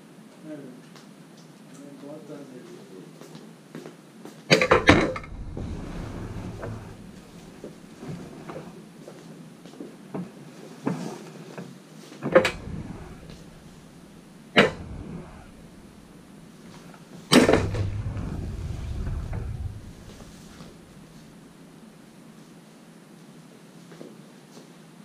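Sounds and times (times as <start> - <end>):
sharp knocks: 12.2 - 21.4.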